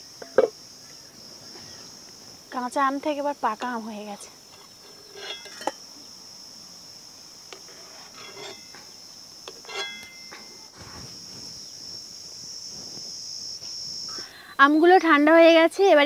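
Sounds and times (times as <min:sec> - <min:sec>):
insects shrilling: 0:00.0 - 0:16.0
metal ladle clinking on pot: 0:05.1 - 0:05.8, 0:09.6 - 0:10.6.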